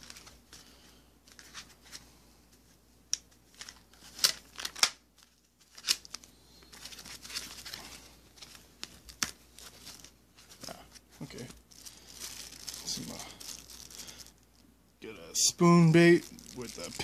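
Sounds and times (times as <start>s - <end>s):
packaging crinkling and tearing: 0.0s - 0.7s, 3.5s - 14.6s, 15.4s - 17.0s
soft rustling: 5.1s - 14.7s.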